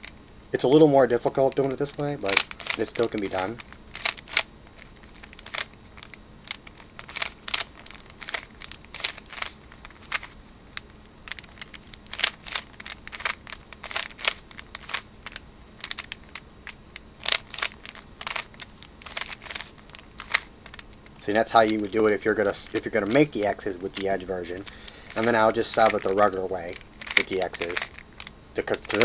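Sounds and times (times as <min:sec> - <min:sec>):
puzzle cube clicks and clacks: 0:24.0 - 0:26.4, 0:27.0 - 0:27.9.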